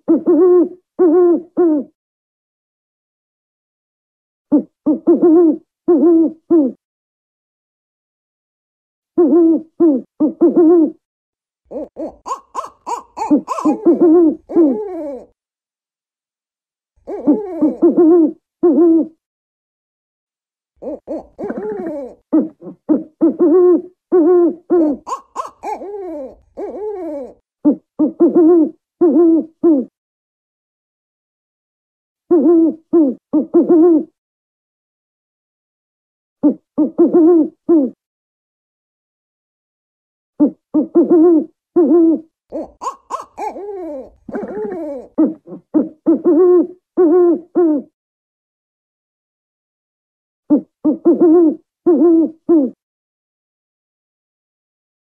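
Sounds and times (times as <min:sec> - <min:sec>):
owl hooting: 0:00.0 - 0:01.9, 0:04.5 - 0:06.8, 0:09.2 - 0:11.0, 0:11.7 - 0:15.3, 0:17.1 - 0:19.2, 0:20.8 - 0:29.9, 0:32.3 - 0:34.1, 0:36.4 - 0:38.0, 0:40.4 - 0:48.0, 0:50.5 - 0:52.8.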